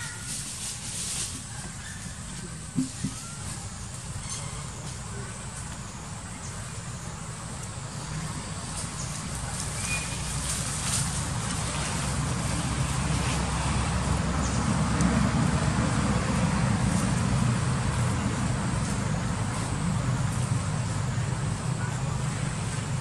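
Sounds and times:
low steady rumble: 0.0s - 23.0s.

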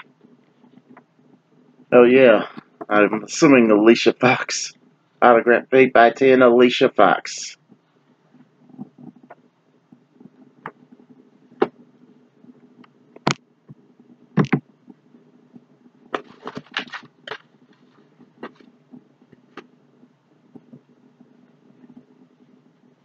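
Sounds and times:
steady low hum: 0.0s - 23.0s
taps and knocks of items: 14.4s - 14.7s, 16.1s - 17.8s, 18.4s - 18.7s
packaging rustling: 16.2s - 18.7s.

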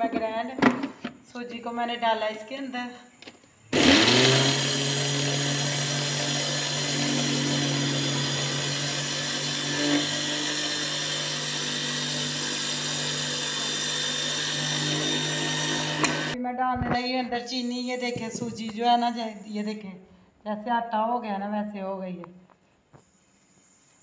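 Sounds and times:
electric grinder grinding semolina: 3.8s - 16.4s.

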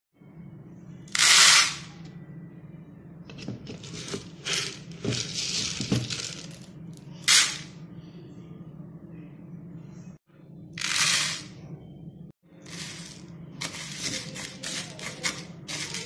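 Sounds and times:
dried beans rattling in plastic tub: 3.7s - 6.7s.

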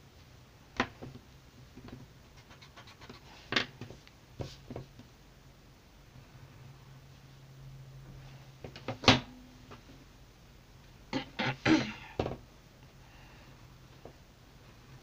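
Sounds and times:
person coughing: 11.1s - 12.2s.

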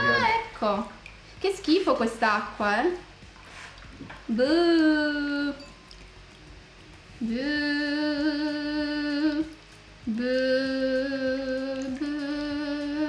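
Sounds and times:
woman humming long notes: 4.3s - 5.7s, 7.2s - 13.0s.

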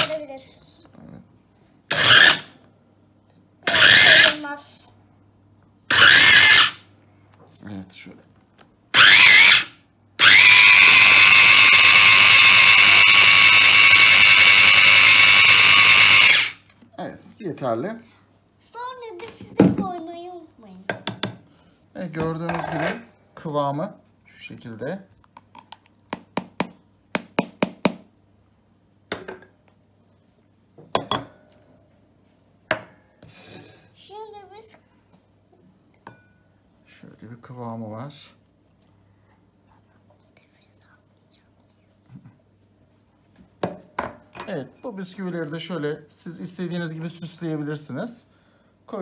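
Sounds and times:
electric chopper motor whine: 9.0s - 16.6s
utensil knocking plastic bowl: 26.1s - 28.1s.

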